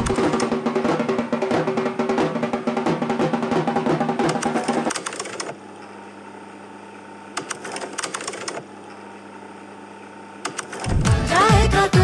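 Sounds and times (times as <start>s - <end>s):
film projector humming: 0.0s - 1.0s, 3.8s - 12.0s
drum-heavy music: 0.0s - 4.4s, 10.9s - 12.0s.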